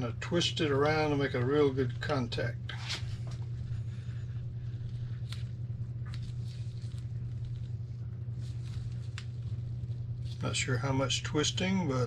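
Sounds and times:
steady low hum: 0.0 - 12.0
gloved hands rustling: 2.8 - 10.8.

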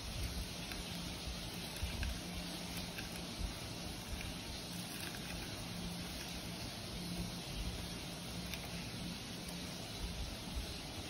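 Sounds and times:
room noise hiss and hum: 0.0 - 11.0
soft ticks of food crushing: 0.1 - 10.1.

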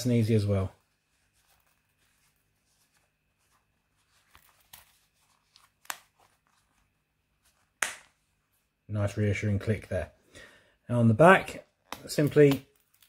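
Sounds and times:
belt pouch rustling: 0.8 - 7.8.

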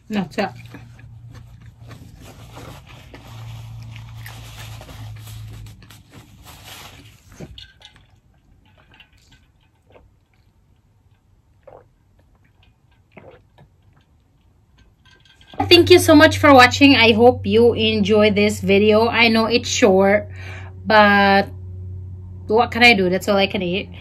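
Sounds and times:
person chewing: 0.5 - 15.0
person sipping from bottle: 11.6 - 12.5, 13.1 - 13.7.

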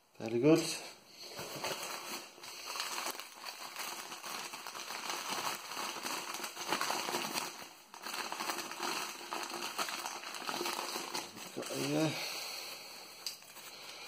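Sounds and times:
newspaper crackling and rustling: 1.2 - 12.2.

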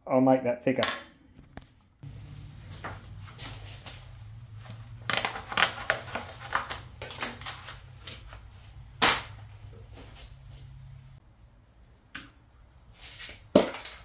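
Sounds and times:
paper rustling: 2.7 - 8.7.

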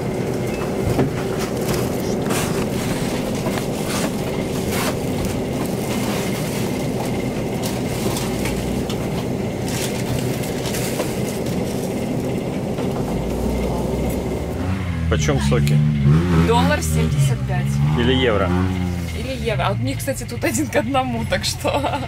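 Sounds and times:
refrigerated display case humming: 0.0 - 22.0
plastic bags crinkling: 1.3 - 13.3.

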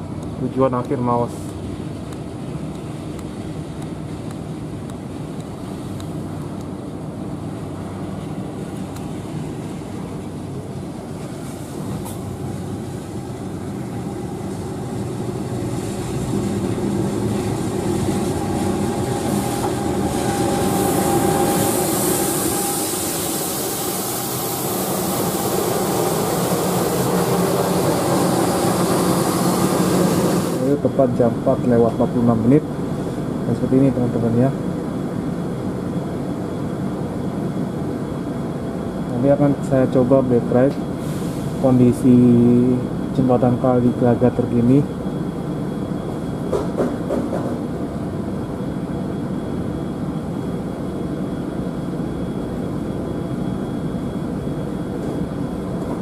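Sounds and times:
locomotive engine drone: 0.0 - 56.0
hiss: 19.3 - 30.6, 41.0 - 41.6.

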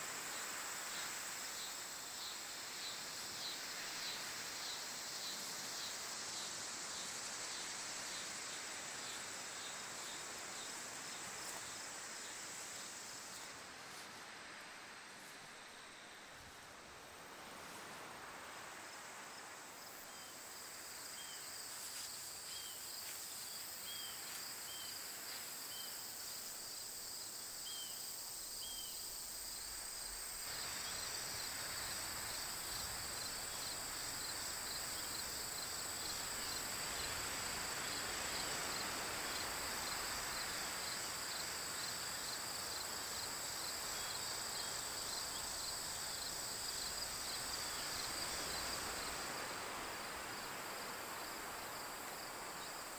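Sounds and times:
crickets trilling in pulses: 19.8 - 52.9.

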